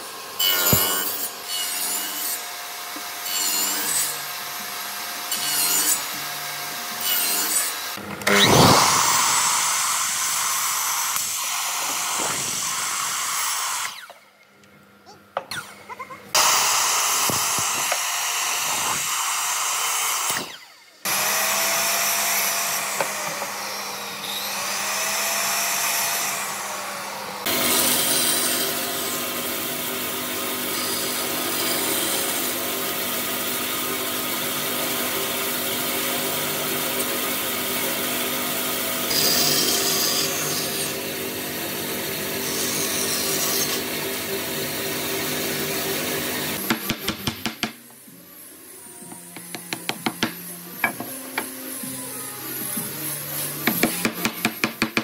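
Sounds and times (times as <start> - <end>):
bench saw cutting wood: 0.0 - 14.2, 16.3 - 55.0
circular saw winding down: 8.2 - 14.2.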